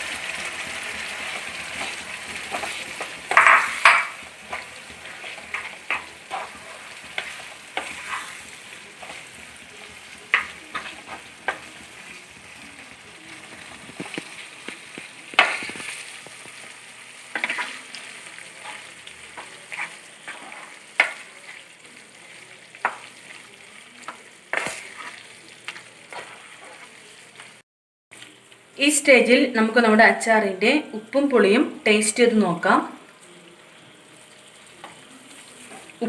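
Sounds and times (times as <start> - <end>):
fruit sizzling in oily sauce: 0.0 - 36.0
spatula scraping a pan: 0.2 - 12.2, 13.4 - 21.7, 22.8 - 27.6.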